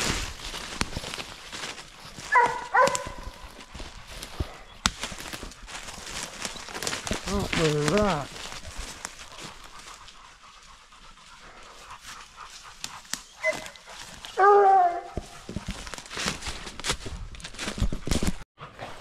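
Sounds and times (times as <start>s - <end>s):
footsteps rustling through leaves: 0.0s - 10.3s, 12.0s - 18.0s
dogs panting hard: 0.6s - 14.4s
dog barking: 2.3s - 3.5s, 13.4s - 13.8s, 14.4s - 15.3s.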